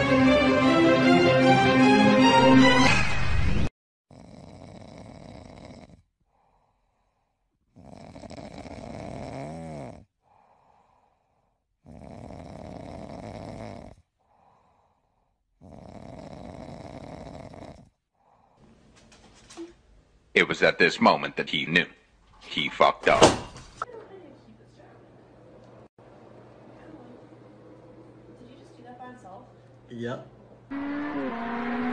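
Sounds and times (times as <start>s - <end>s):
man snoring: 4.1s - 6.8s, 7.7s - 11.1s, 11.8s - 14.8s, 15.6s - 18.5s.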